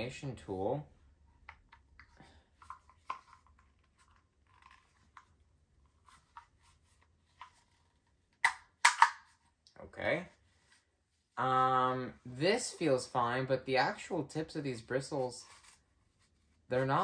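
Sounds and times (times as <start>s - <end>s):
plastic tool handling rustles: 1.4s - 8.3s.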